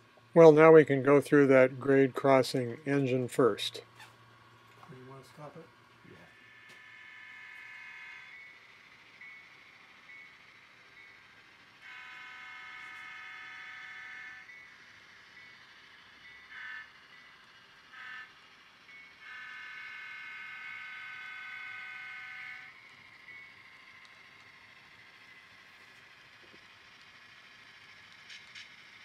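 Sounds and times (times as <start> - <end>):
diesel locomotive horn blasts: 11.8 - 14.5, 19.2 - 22.7.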